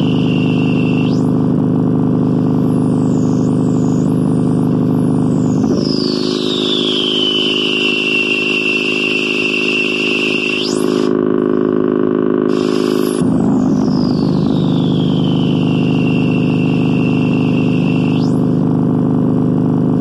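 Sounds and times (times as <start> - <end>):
high whistling tones sweeping down: 0.0 - 1.3, 2.8 - 11.1, 12.5 - 18.6
buzzing synthesizer drone: 0.0 - 20.0.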